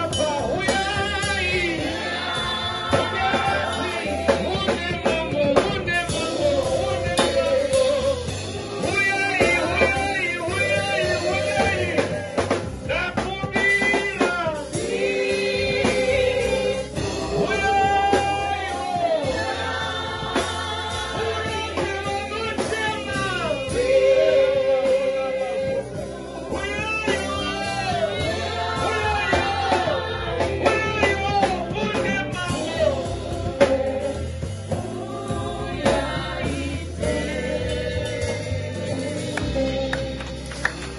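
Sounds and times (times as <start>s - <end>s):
women backing singers: 0.0s - 13.0s, 14.7s - 40.9s
man singing lead: 0.0s - 19.7s, 21.2s - 40.1s
drum kit: 0.0s - 40.9s.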